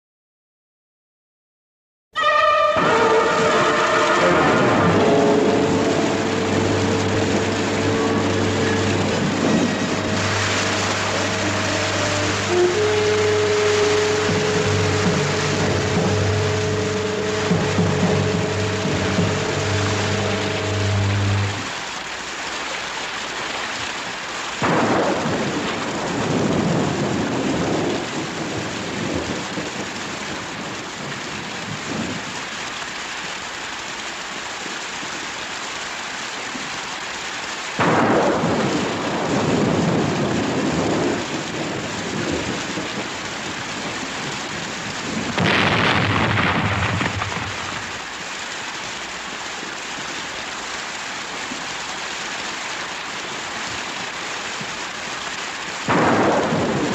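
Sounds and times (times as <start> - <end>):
thunder rumbling: 2.2 - 21.8, 24.6 - 32.4, 37.8 - 48.2, 55.8 - 56.9
steady rain: 2.2 - 56.9.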